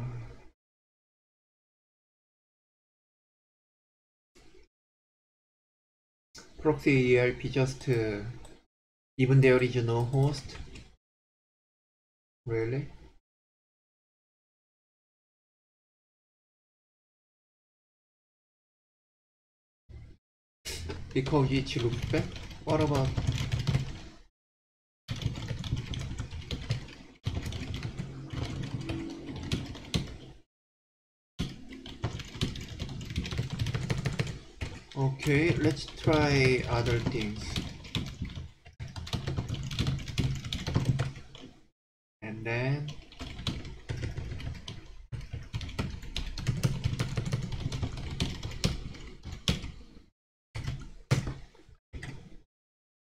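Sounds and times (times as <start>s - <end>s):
computer keyboard typing: 21.2s - 24.2s, 25.1s - 30.2s, 31.4s - 41.5s, 42.9s - 49.8s.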